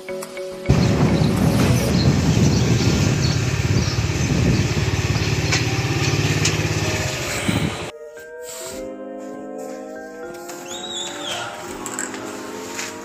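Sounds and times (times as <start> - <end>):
motorcycle engine running: 0.7 - 7.9.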